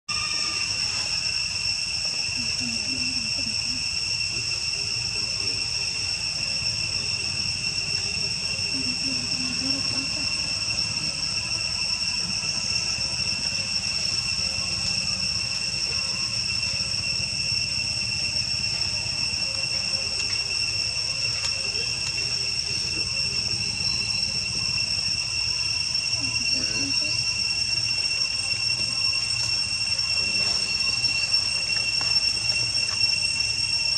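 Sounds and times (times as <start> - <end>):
insects droning: 0.1 - 33.9.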